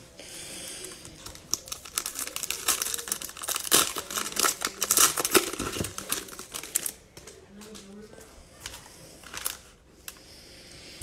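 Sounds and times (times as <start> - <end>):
cellophane wrapper crinkling: 0.8 - 7.0.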